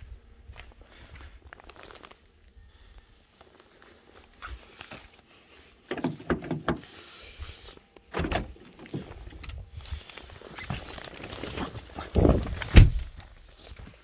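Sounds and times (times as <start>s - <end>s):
footsteps on snow: 3.0s - 5.9s, 8.8s - 14.0s
car door latch clunk: 8.1s - 8.5s.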